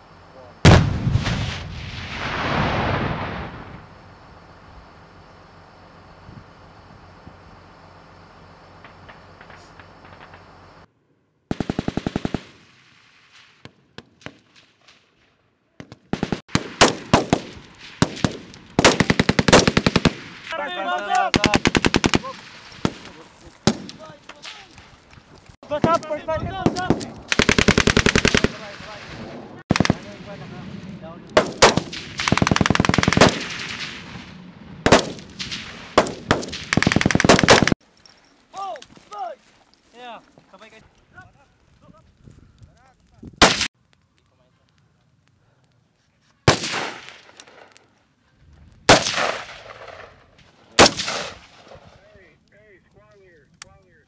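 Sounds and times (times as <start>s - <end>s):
single rifle shots: 0.6s - 3.6s, 15.8s - 20.6s, 25.7s - 30.4s, 31.3s - 37.8s, 43.4s - 43.7s, 46.5s - 47.8s, 48.9s - 52.0s
automatic gunfire bursts: 11.5s - 12.6s, 16.1s - 20.2s, 21.3s - 23.0s, 26.6s - 28.6s, 29.7s - 30.1s, 31.4s - 33.6s, 36.0s - 37.8s.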